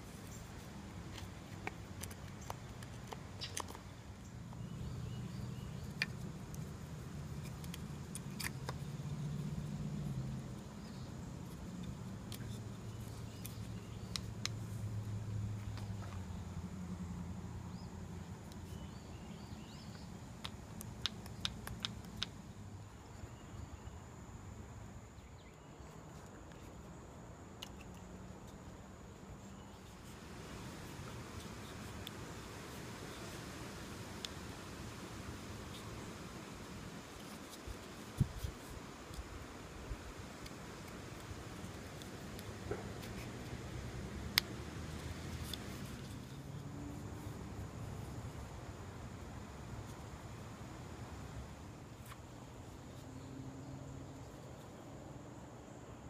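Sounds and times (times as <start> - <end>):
knife and sticks clicking: 5.6 - 9.6, 11.5 - 14.7, 19.8 - 22.4.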